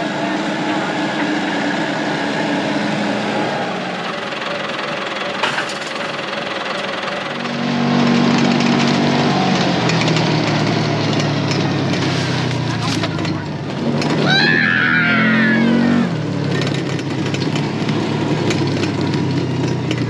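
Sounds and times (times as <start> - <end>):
diesel tractor engines idling: 0.0 - 20.0
deeper engine note: 6.1 - 16.8.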